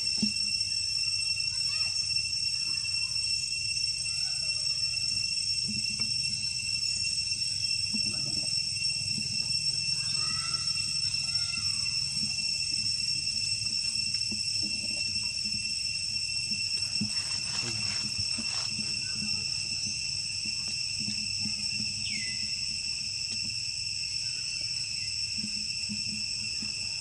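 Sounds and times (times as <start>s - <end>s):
insects droning: 0.0s - 27.0s
faint chirping calls: 9.4s - 12.6s, 16.8s - 22.8s.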